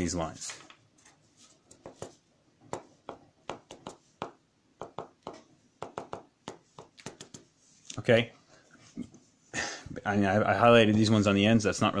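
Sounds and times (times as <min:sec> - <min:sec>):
marker tapping on paper: 0:01.7 - 0:07.5.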